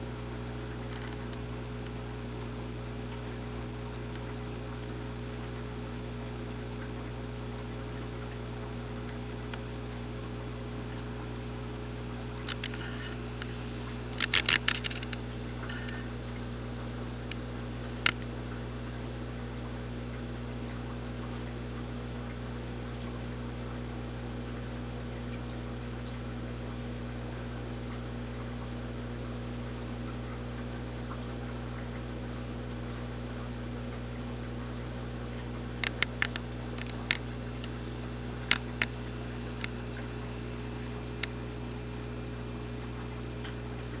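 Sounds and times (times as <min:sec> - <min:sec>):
low mechanical hum: 0:00.0 - 0:44.0
sharp clicks: 0:14.1 - 0:15.2, 0:35.8 - 0:37.8, 0:38.4 - 0:41.4.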